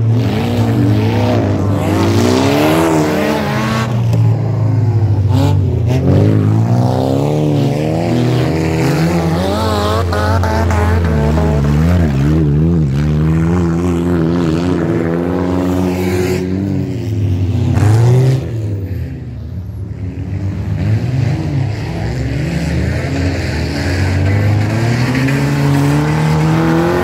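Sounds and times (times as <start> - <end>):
car engines revving hard: 0.0 - 27.0.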